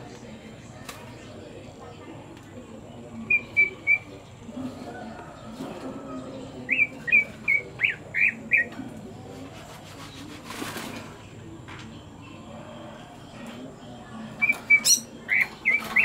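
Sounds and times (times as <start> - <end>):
rustling noise: 9.4 - 11.2.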